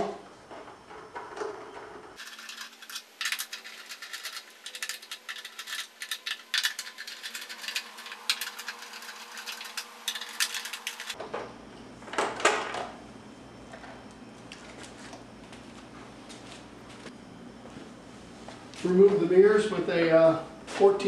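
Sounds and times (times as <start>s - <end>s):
wrench clicking and rattling: 2.2s - 11.2s.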